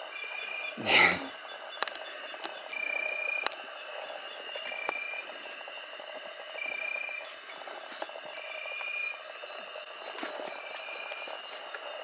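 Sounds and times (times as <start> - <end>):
high-pitched insect trills: 0.0 - 12.0
insect chorus: 0.0 - 12.0
loud noise near microphone: 0.7 - 2.0.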